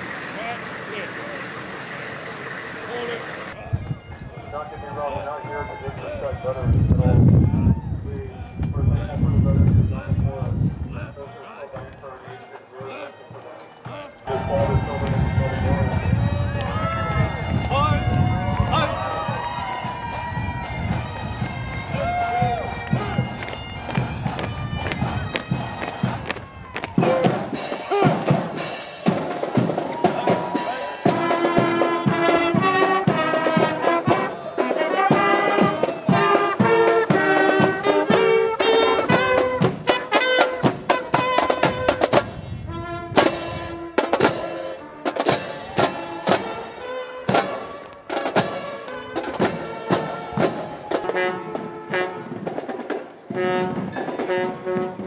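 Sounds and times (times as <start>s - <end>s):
brass melody: 11.2s - 55.0s
bass and snare drumbeat: 20.8s - 34.3s, 35.0s - 46.6s.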